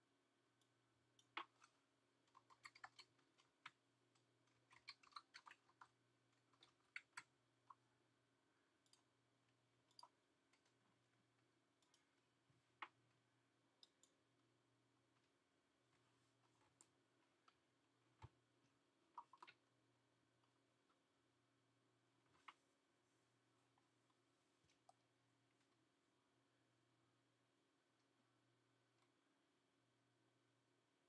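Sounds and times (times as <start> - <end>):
faint low hum: 0.0 - 31.0
faint sharp clicks and taps: 8.8 - 14.4, 15.0 - 19.7, 22.2 - 22.8, 23.6 - 25.8.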